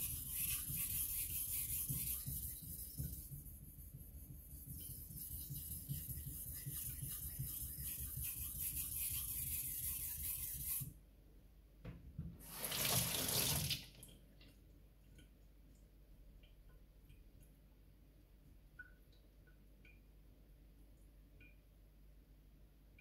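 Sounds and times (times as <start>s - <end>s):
knife stroked on a whetstone: 0.0s - 10.9s
running tap water: 12.4s - 14.0s.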